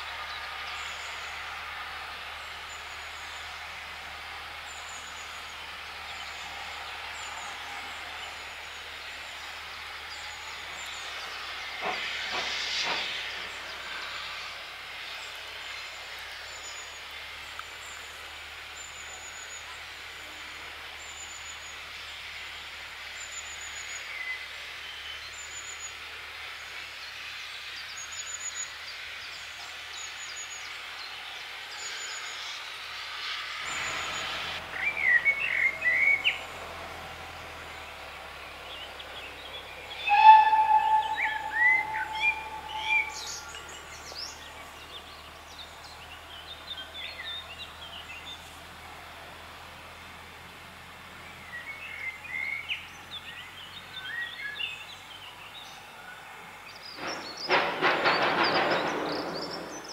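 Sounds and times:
steam hissing: 0.0 - 52.7
bird chirping: 38.6 - 48.3
steam whistle: 39.9 - 43.8.

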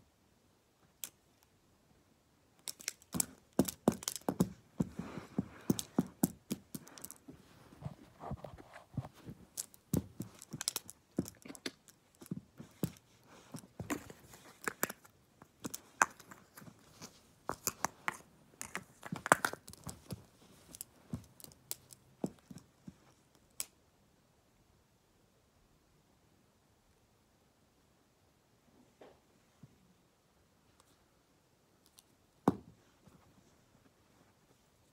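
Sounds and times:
plastic pens clicking and tapping: 2.6 - 7.3, 9.2 - 22.7.

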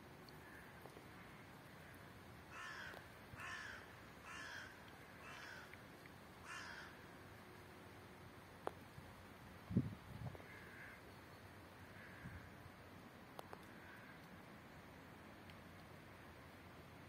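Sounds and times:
faint outdoor background noise: 0.0 - 17.0
crow-like bird cawing: 0.4 - 5.8, 6.4 - 7.0, 10.4 - 11.0, 11.8 - 12.5, 13.7 - 14.3.

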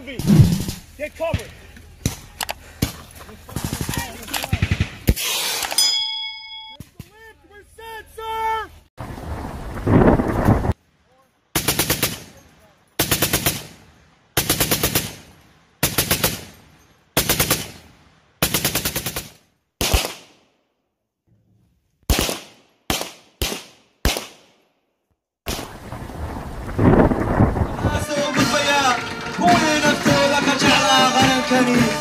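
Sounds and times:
machine gun firing bursts: 3.6 - 5.4, 11.6 - 12.3, 13.0 - 13.8, 14.4 - 15.2, 15.8 - 16.5, 17.2 - 17.8, 18.4 - 20.2
single rifle shots: 19.8 - 20.5, 22.1 - 24.6.

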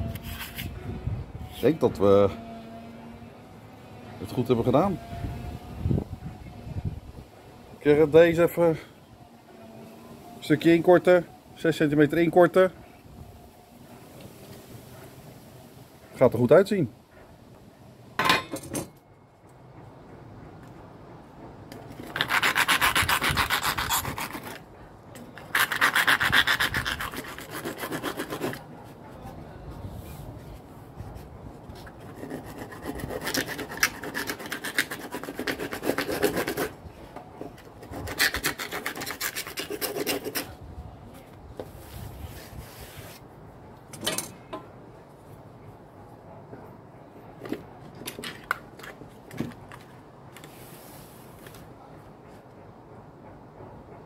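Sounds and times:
hand saw rasping through board: 22.0 - 24.6, 25.4 - 28.7, 32.0 - 36.8, 37.8 - 40.6.

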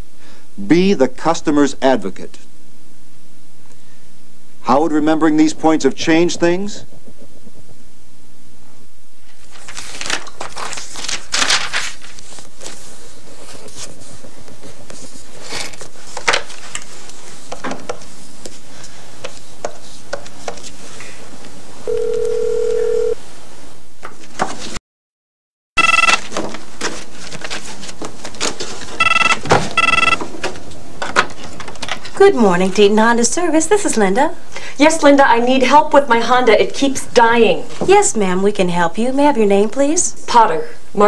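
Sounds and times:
desk telephone ringing: 21.9 - 23.2, 25.8 - 26.2, 29.0 - 30.3
steady telephone tone: 21.9 - 23.2, 25.8 - 26.2, 29.0 - 30.2.

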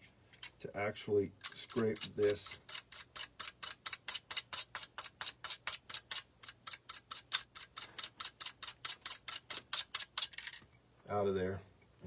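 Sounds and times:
scissor blade scraping feather quill: 1.4 - 10.4.

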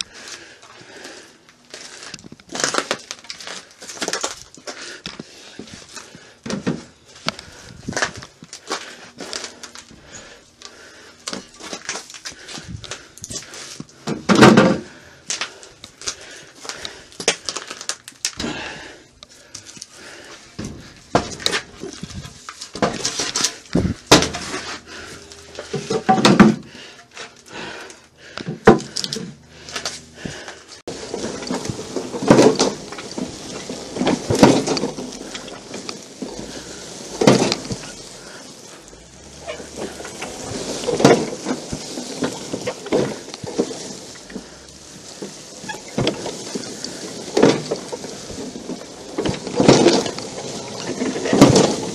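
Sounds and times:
wooden boards knocking and scraping: 1.8 - 10.2, 11.2 - 17.7, 20.0 - 27.7, 28.4 - 51.9.

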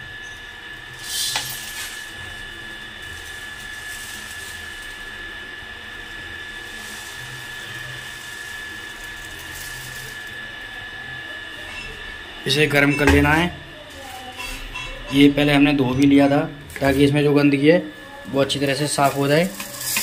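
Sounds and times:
high-pitched whine: 0.0 - 20.0
grain pouring onto metal: 0.9 - 10.8, 18.6 - 20.0.

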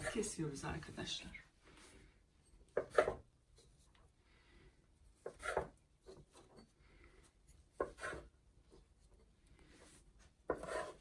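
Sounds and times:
metal cutter scraping dough: 10.5 - 11.0.

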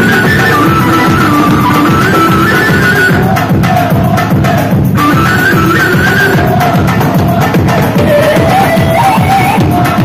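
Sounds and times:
fast drum beat: 0.0 - 10.0
high winding melodic lead: 5.4 - 9.8.

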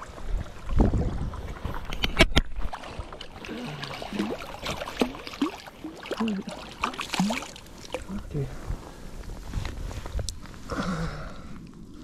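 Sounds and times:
fish thrashing in shallow water: 1.3 - 8.2.

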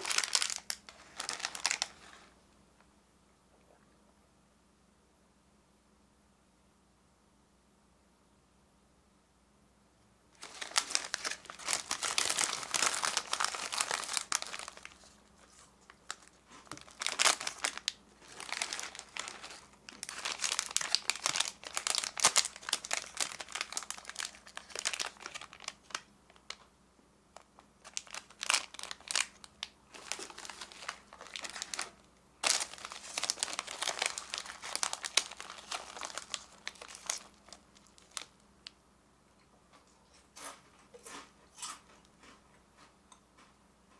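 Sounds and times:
snack wrappers crinkling: 0.0 - 2.2, 10.4 - 26.7, 27.4 - 38.8.

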